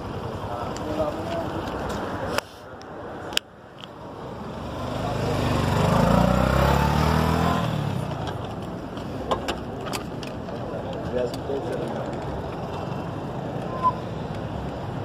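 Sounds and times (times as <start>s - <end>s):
vehicle passing close by: 4.3s - 8.3s.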